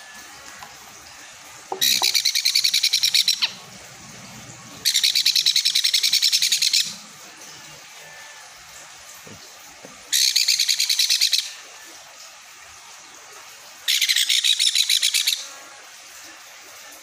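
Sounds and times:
parrot chick chirping: 1.7 - 3.7, 4.8 - 7.0, 10.1 - 11.6.

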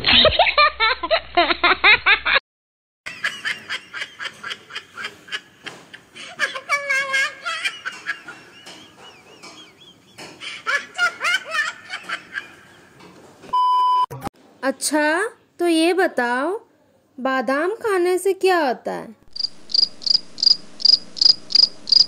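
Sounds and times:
laughter in bursts: 0.0 - 2.4, 3.1 - 13.0.

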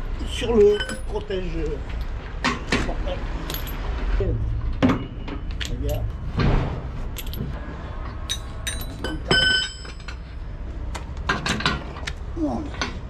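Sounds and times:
metal wheel nuts clinking: 0.2 - 3.9, 7.1 - 10.4.

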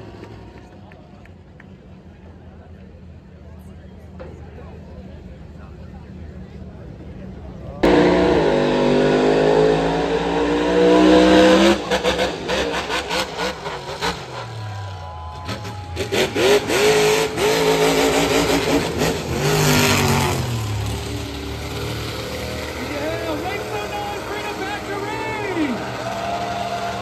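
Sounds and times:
monster truck engine revving: 7.7 - 27.0.

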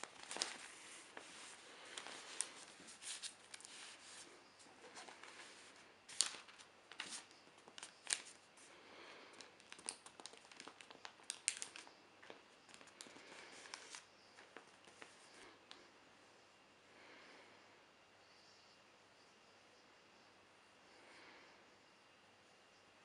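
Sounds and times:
newspaper rustling and crinkling: 0.0 - 15.5.

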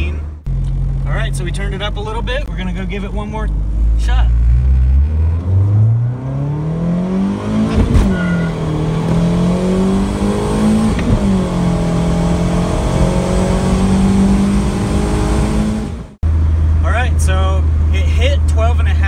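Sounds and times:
car engine revving at full throttle: 3.5 - 16.5.

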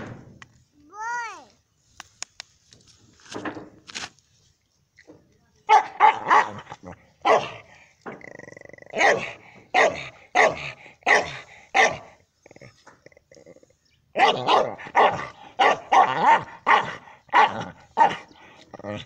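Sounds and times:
dog barking: 5.7 - 7.7, 8.9 - 12.1, 14.2 - 18.3.

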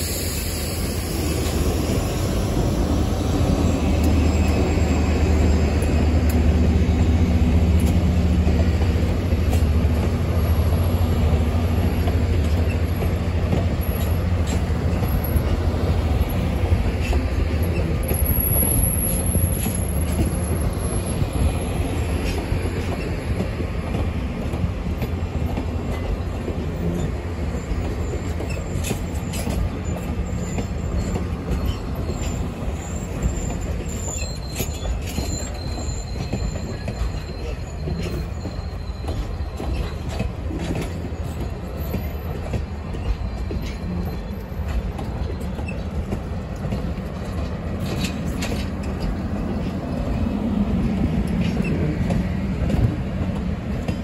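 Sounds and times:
high wheel squeal: 0.0 - 6.2, 25.9 - 46.0
rail joint clicks: 0.0 - 54.0
steel wheels rumbling on rail: 0.0 - 54.0.

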